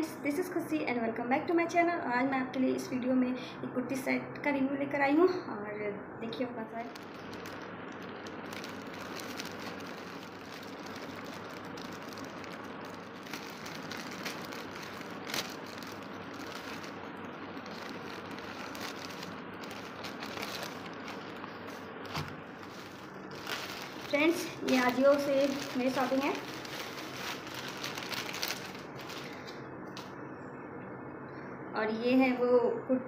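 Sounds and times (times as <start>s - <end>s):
plastic and paper crinkling: 6.8s - 30.1s.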